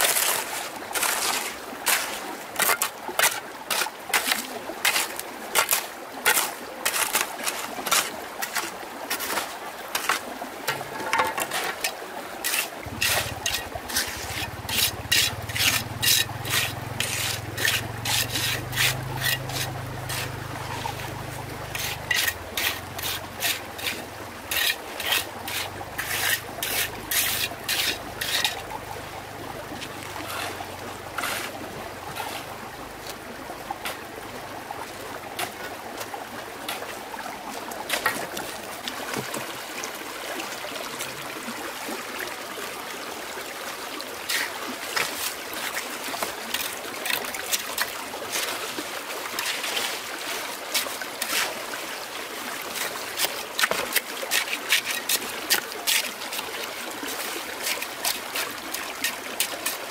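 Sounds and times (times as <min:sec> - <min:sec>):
wood scraped by hand: 0:10.0 - 0:28.7, 0:29.8 - 0:32.6.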